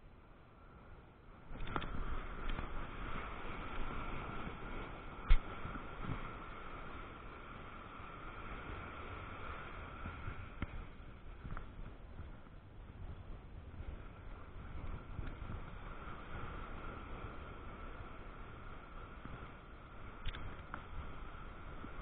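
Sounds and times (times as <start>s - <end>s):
wind on microphone: 0.0s - 22.0s
breaking surf: 1.5s - 12.4s
faint clicks: 20.2s - 20.9s.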